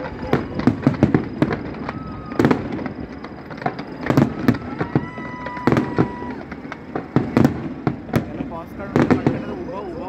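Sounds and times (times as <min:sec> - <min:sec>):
high whistle-like tone: 0:00.0 - 0:06.4
fireworks bangs: 0:00.0 - 0:10.0.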